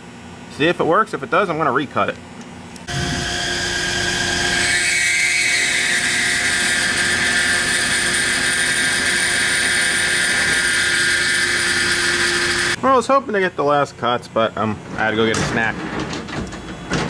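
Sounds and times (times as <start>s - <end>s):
high-pitched machining whine: 2.9s - 13.4s.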